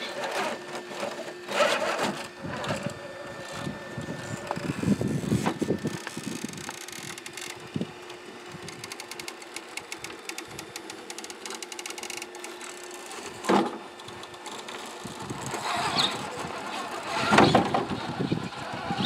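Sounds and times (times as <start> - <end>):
electric motor and gears whining: 0.0 - 19.0
rapid fine clicks: 8.5 - 13.1.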